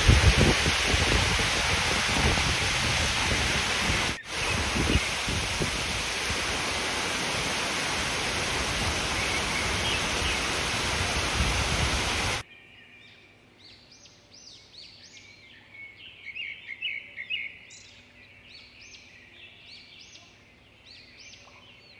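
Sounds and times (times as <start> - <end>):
heavy rain pouring: 0.0 - 12.4
faint birds chirping: 3.4 - 21.9.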